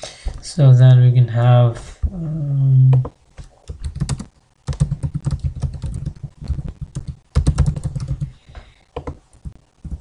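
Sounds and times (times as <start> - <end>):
typing on computer keyboard: 3.7 - 6.2, 6.8 - 8.3.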